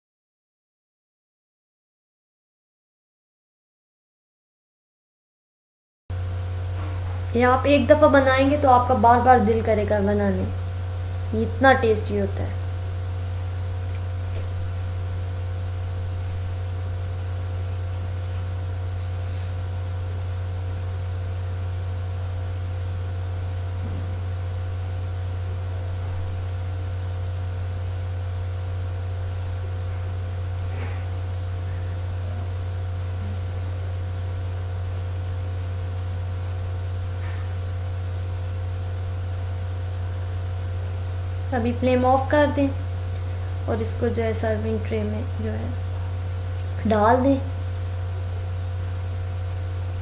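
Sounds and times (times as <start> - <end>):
low electrical hum: 6.1 - 50.0.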